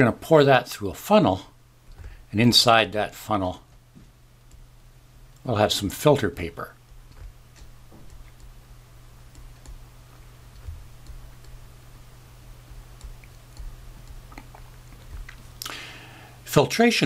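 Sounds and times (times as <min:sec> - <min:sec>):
steady low hum: 0:00.0 - 0:17.0
stylus tapping on drawing tablet: 0:07.0 - 0:08.6, 0:09.2 - 0:11.7, 0:12.8 - 0:14.5.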